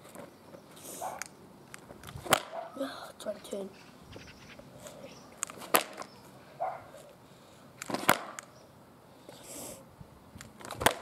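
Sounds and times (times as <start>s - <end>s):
skateboard clacking on asphalt: 1.2s - 2.6s, 5.4s - 6.8s, 7.8s - 8.5s, 10.4s - 11.0s.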